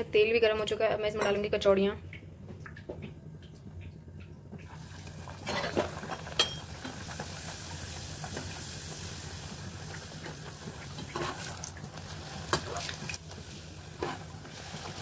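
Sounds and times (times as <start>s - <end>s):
food sizzling in hot oil: 4.7s - 15.0s.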